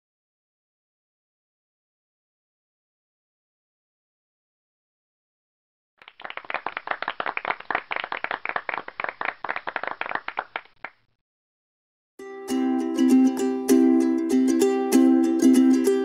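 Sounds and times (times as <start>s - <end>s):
applause: 6.0s - 11.0s
plucked ukulele music: 12.2s - 16.0s.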